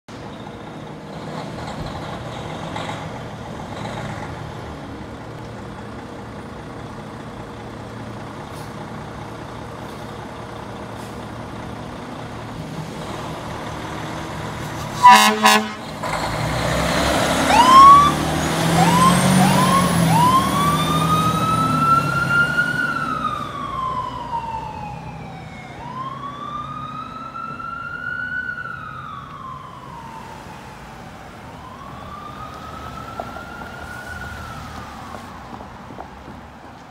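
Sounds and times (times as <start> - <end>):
truck engine rumbling: 0.1 - 36.9
fire engine siren: 14.2 - 36.1.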